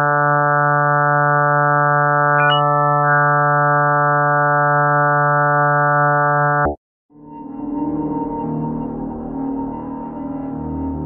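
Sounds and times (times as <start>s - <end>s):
low electronic drone: 0.0s - 11.0s
higher electronic blip: 2.4s - 3.2s.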